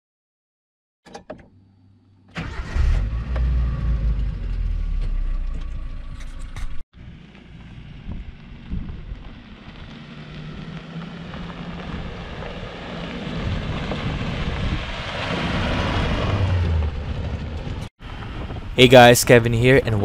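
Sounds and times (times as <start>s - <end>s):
off-road vehicle engine: 1.1s - 20.0s
tyre and wind noise: 7.6s - 20.0s.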